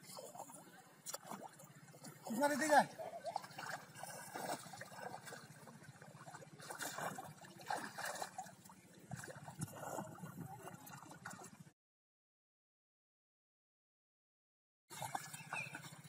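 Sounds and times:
water splashing and sloshing: 0.0 - 11.7, 14.9 - 16.0.

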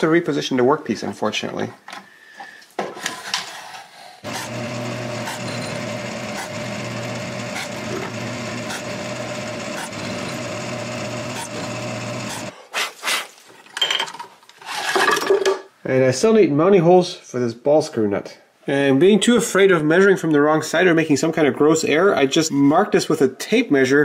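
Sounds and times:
drill boring into plywood: 4.2 - 12.5.

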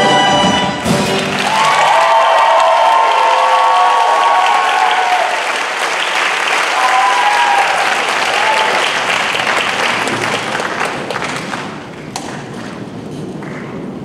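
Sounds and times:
audience applauding: 0.8 - 12.8
calls from audience: 1.2 - 11.3.

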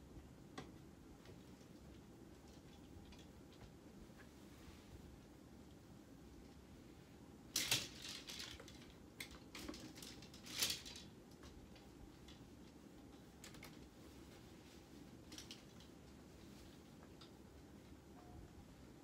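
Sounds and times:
fabric rustling: 9.8 - 18.0.

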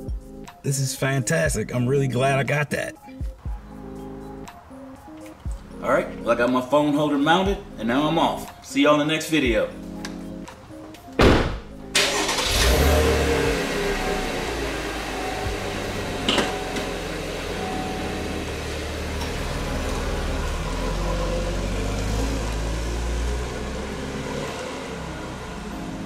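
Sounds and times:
sharp knock: 11.2 - 11.7
car engine pulling away: 11.9 - 26.0.

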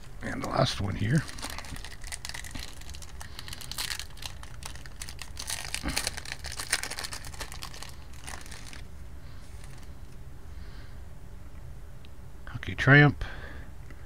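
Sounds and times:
plastic wrapper tearing and crinkling: 0.0 - 8.9, 9.5 - 9.9.

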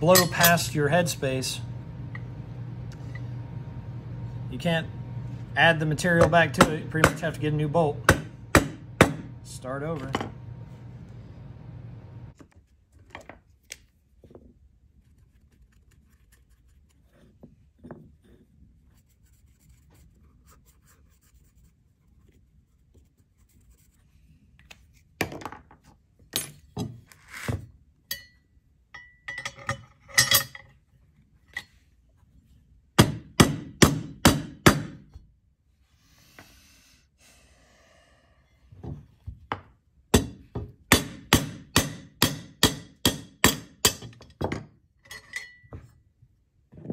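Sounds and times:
mallet striking metal: 8.0 - 9.4, 40.2 - 44.1.

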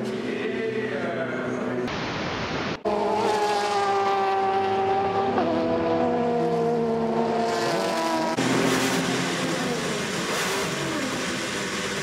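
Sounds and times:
race car engine at high revs: 2.8 - 12.0.

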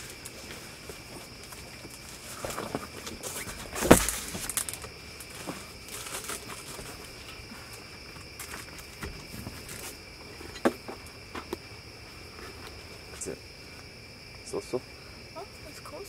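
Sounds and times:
insects chirring: 0.0 - 16.0
panel rustling and bumping: 1.6 - 7.4.

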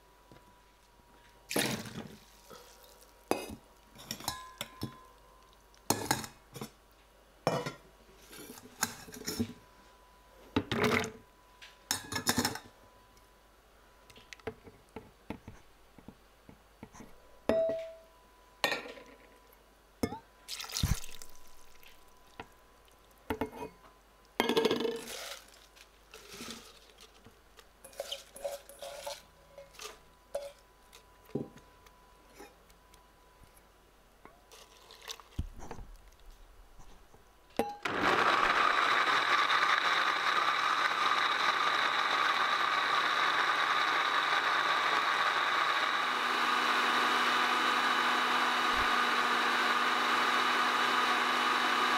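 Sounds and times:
blender running: 37.8 - 51.9.

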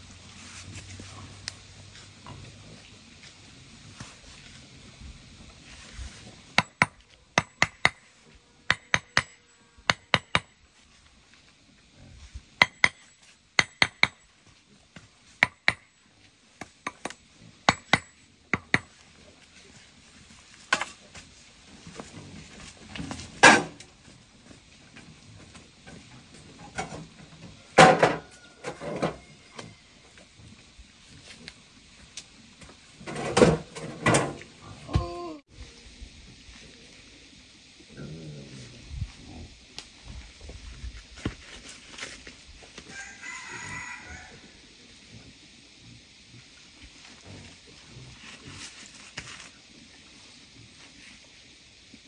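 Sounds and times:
trowel tapping concrete blocks: 6.5 - 8.1, 8.7 - 10.6, 12.6 - 14.3, 15.4 - 15.9, 16.5 - 19.0
clanks and knocks: 33.0 - 34.5.

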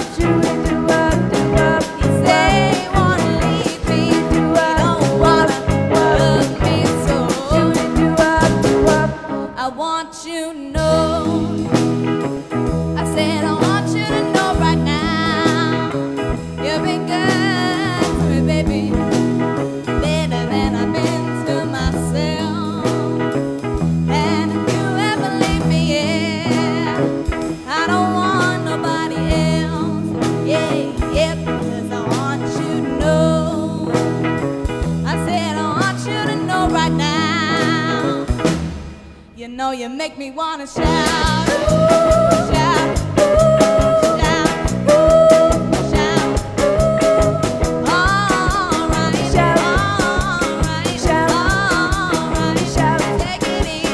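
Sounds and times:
drum kit: 0.0 - 9.8, 10.8 - 39.8, 40.7 - 53.9
sung vocals: 0.0 - 11.8, 12.9 - 19.3, 20.0 - 23.3, 24.1 - 34.4, 35.0 - 38.4, 39.4 - 53.9
electric guitar: 0.0 - 53.9.

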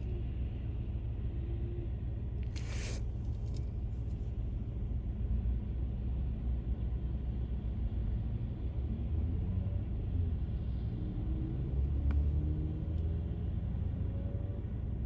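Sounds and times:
low rumble of road traffic: 0.0 - 15.0
car tyres hissing on wet pavement: 2.5 - 3.1.

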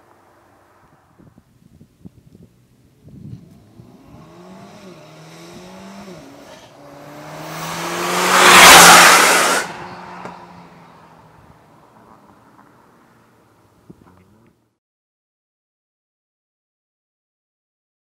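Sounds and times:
car accelerating past: 3.2 - 12.7.

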